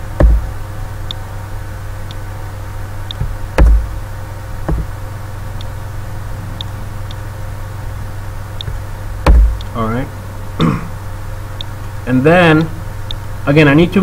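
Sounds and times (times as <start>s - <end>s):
sharp knocks: 0.0s - 0.6s, 3.1s - 5.0s, 8.6s - 9.8s
electrical hum: 0.0s - 14.0s.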